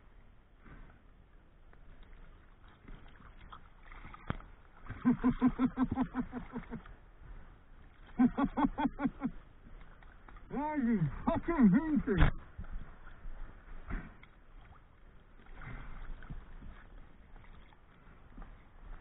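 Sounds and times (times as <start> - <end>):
faint sea and water noise: 0.0 - 19.0
man laughing excitedly: 4.9 - 6.9, 8.2 - 9.4.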